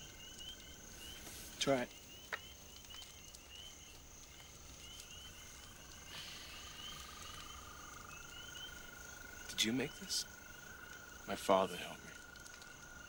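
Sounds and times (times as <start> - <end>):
frog chirps: 0.0 - 13.0
insect drone: 0.0 - 13.0.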